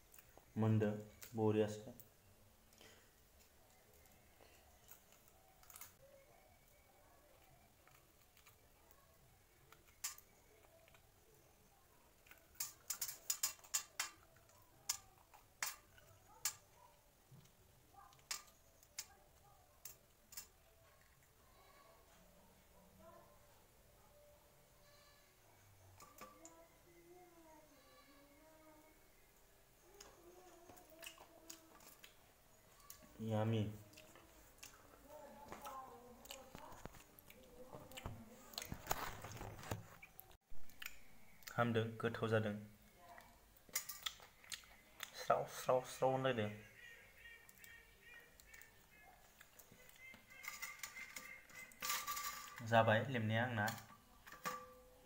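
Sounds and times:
person chewing food: 33.8 - 41.6, 43.2 - 45.2.

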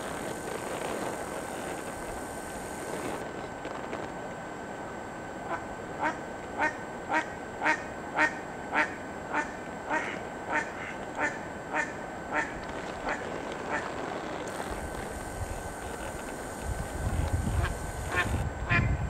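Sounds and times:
duck quacking: 5.5 - 13.8.

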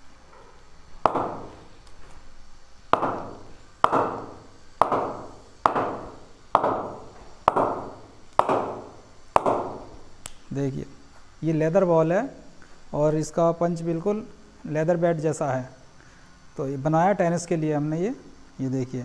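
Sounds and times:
ball bouncing on cricket bat: 1.0 - 1.7, 2.9 - 10.0.

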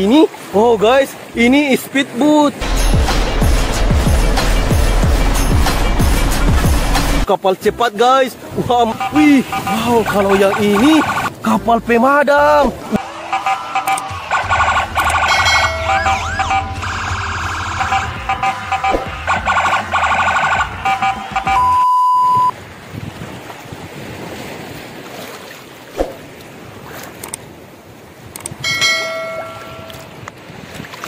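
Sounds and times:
electronic tones: 8.9 - 11.3, 13.0 - 22.5
long steady beep: 8.9 - 11.3, 13.0 - 22.5
toy siren wails and beeps: 8.9 - 11.3, 13.0 - 22.5.

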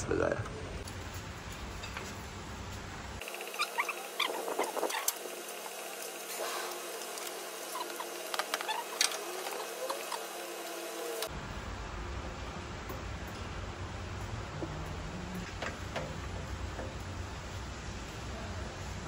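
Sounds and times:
short high-pitched squeaks: 3.4 - 5.2, 7.7 - 10.2.

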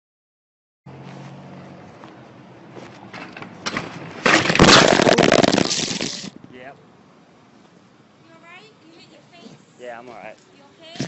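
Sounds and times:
bike crashing on asphalt: 3.1 - 6.4.

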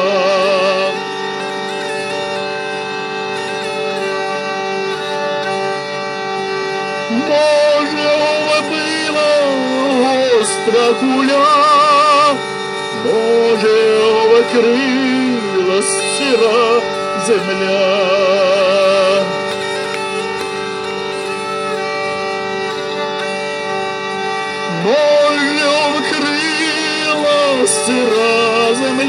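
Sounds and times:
man singing with vibrato: 0.0 - 3.4, 6.8 - 19.6, 24.2 - 29.0
hurdy-gurdy drone: 0.0 - 29.0.

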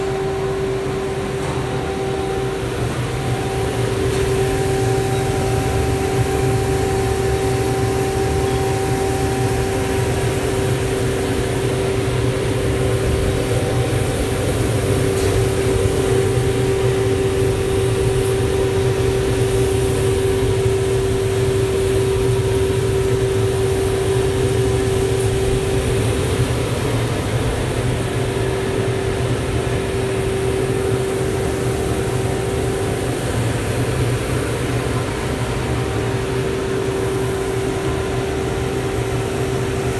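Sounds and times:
coffee roaster machine hum: 0.0 - 39.9.

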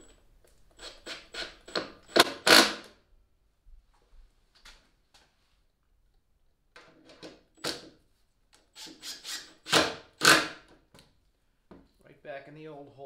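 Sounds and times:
drill driving screws into wood: 0.7 - 3.0, 8.7 - 10.7.

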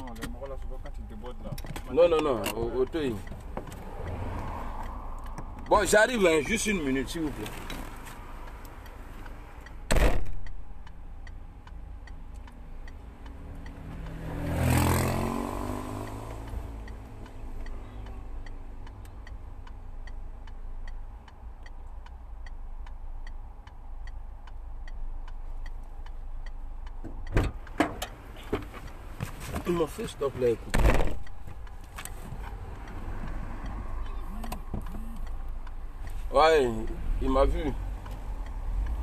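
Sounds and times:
car indicator ticking: 0.0 - 39.0
vehicle passing outside: 2.8 - 9.7, 12.6 - 19.6, 28.2 - 39.0
car door shutting: 27.1 - 29.7, 30.7 - 31.6.

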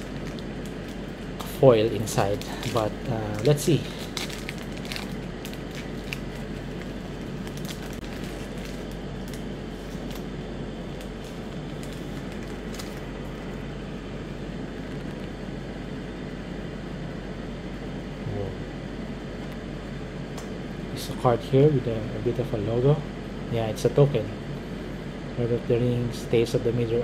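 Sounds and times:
plastic wrapper crinkling: 0.0 - 10.3, 10.9 - 13.4
background hiss and hum: 0.0 - 27.0.

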